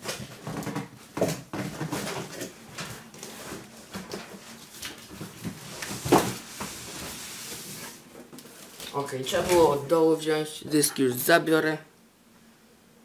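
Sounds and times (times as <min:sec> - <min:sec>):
cardboard scraping and rustling: 0:00.0 - 0:09.9.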